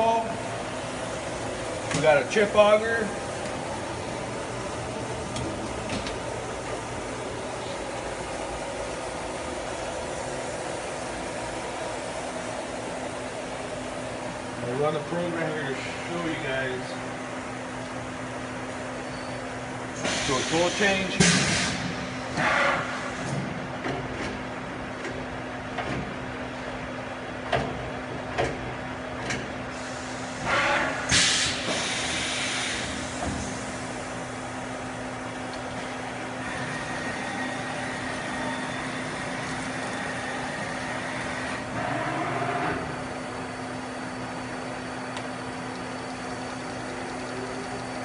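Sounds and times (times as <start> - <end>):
machining center hum: 0.0 - 48.0
air hisses: 29.8 - 33.6.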